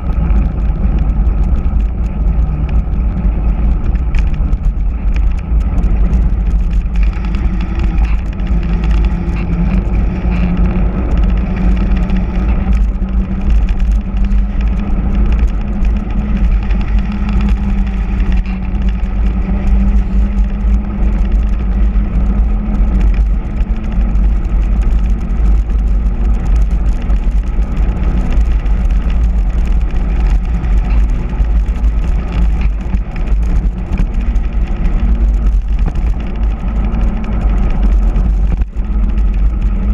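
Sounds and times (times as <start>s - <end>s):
tyres humming on asphalt: 0.0s - 39.9s
wind rushing over microphone: 0.0s - 39.9s.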